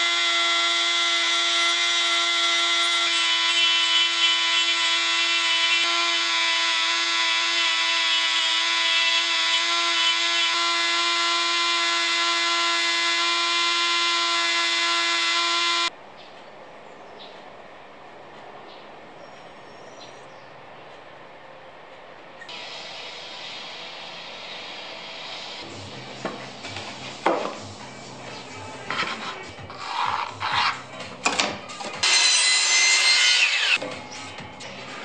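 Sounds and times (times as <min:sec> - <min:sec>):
rotary tool grinding wood: 0:00.0 - 0:15.9, 0:28.8 - 0:30.9, 0:32.0 - 0:33.8.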